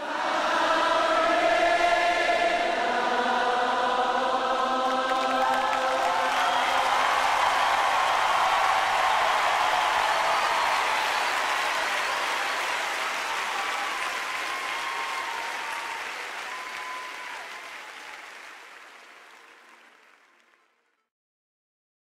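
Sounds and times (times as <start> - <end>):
congregation applauding: 4.7 - 20.9.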